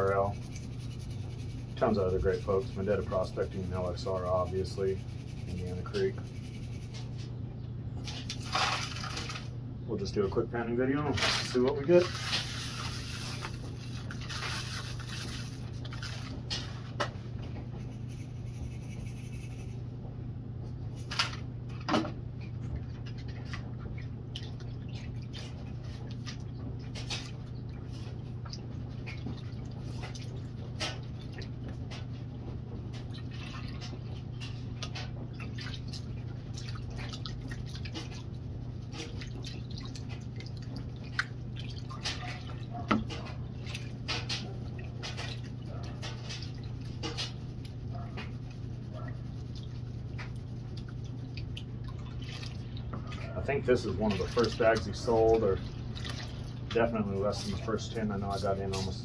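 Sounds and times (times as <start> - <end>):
steady low hum: 0.0 - 59.0
water sloshing and splashing: 8.0 - 9.6, 11.0 - 17.3, 21.0 - 59.0
dirt poured through mesh strainer: 8.4 - 9.4, 11.1 - 16.3.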